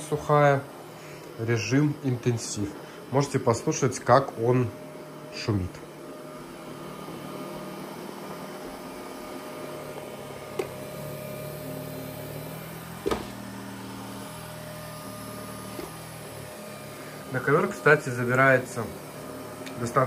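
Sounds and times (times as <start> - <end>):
robot vacuum motor and fan hum: 0.0 - 20.0.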